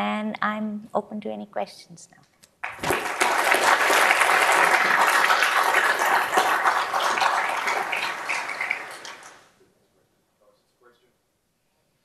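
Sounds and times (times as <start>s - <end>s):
audience applauding: 2.6s - 9.5s.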